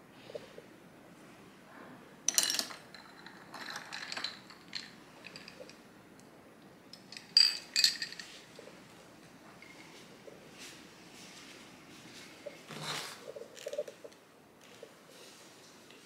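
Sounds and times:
ice cubes clinking in a glass: 7.2s - 8.4s.

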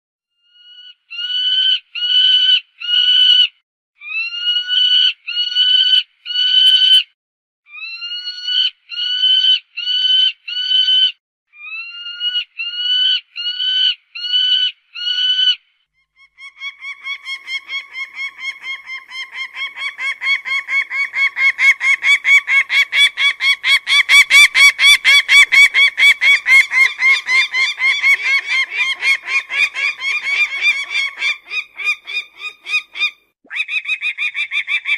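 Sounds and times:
falcon harsh calls: 16.5s - 34.8s.

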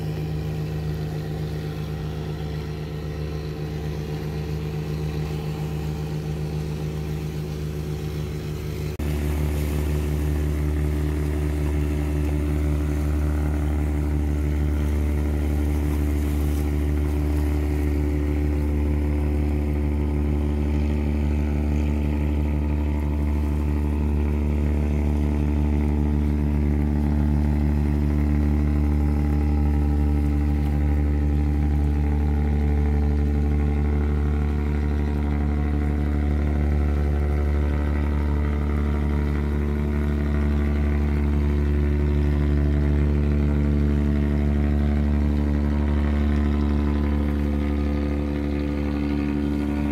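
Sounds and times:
boat engine passing: 0.0s - 49.9s
deep fishing boat engine: 0.0s - 49.9s.

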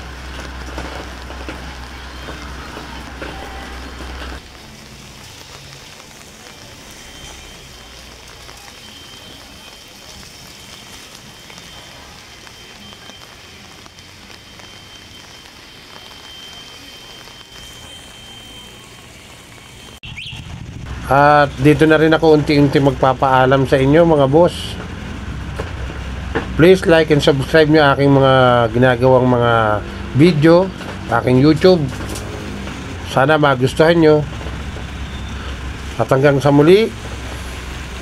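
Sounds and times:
rain hissing: 0.0s - 38.0s
low rumble: 20.0s - 27.7s.

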